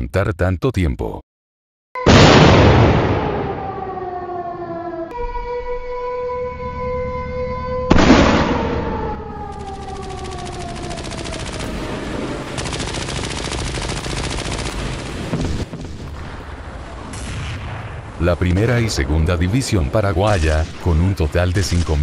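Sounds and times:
loud blast: 2.0 - 4.0, 7.9 - 9.3, 14.9 - 19.1
air-raid siren wailing: 2.0 - 12.6
rapid machine-gun fire: 9.5 - 16.0.

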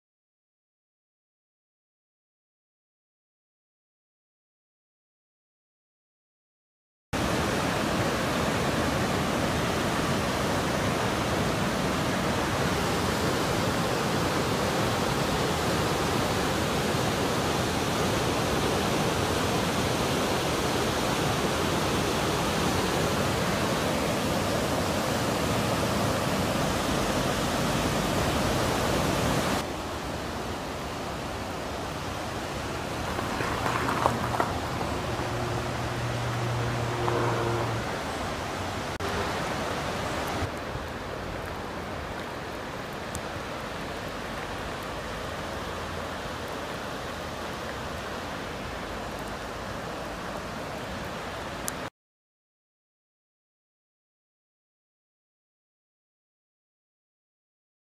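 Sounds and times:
floodwater rushing: 7.2 - 51.9.

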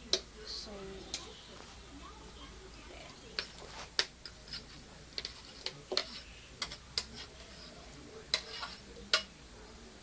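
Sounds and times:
metal spatula scraping a plate: 3.4 - 9.3.

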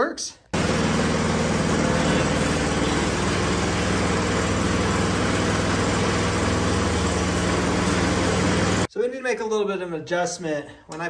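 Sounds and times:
snowblower engine running: 0.6 - 8.9.

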